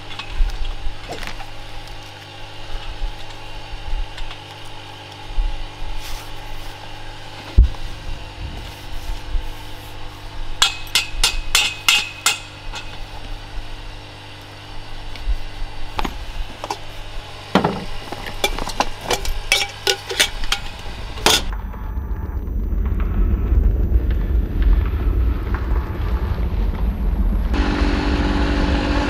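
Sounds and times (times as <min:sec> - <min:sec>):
wind on microphone: 0:07.6 - 0:10.6.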